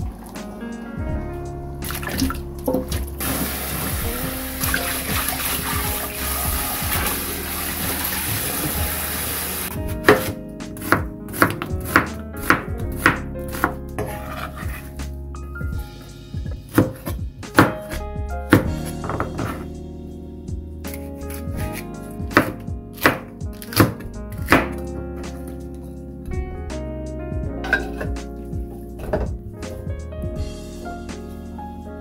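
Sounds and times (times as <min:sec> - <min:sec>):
background music: 0:00.0 - 0:32.0
tap water running into sink: 0:01.8 - 0:09.7
knife chopping on cutting board: 0:10.0 - 0:14.8, 0:16.7 - 0:19.6, 0:21.6 - 0:24.8.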